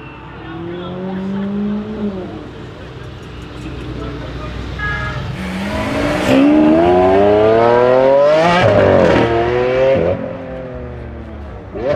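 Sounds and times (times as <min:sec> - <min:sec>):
car engine accelerating hard: 0:05.4 - 0:11.9.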